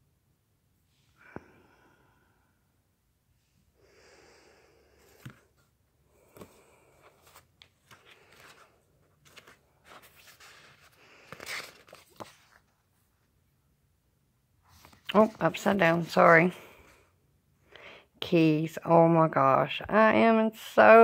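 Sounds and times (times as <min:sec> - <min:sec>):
paper rustling and crinkling: 0:06.3 - 0:13.0.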